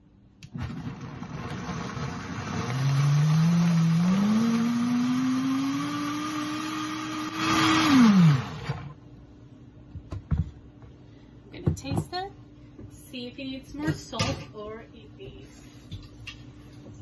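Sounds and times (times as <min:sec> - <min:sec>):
blender motor whining: 0:00.6 - 0:09.0.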